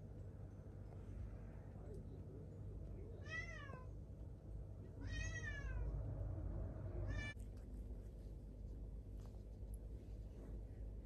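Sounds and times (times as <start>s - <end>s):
cat meowing: 3.2s - 3.9s, 5.0s - 5.9s, 7.1s - 7.4s.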